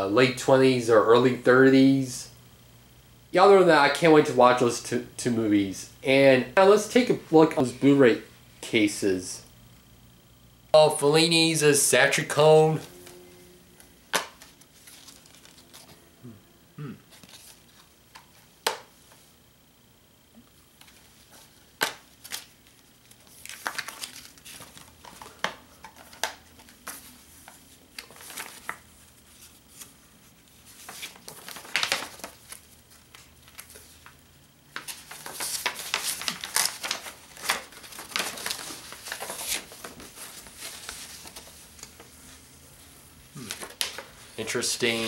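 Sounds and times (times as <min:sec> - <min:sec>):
paper poster rustling: 0:10.8 - 0:16.1, 0:17.1 - 0:18.5, 0:20.8 - 0:45.0.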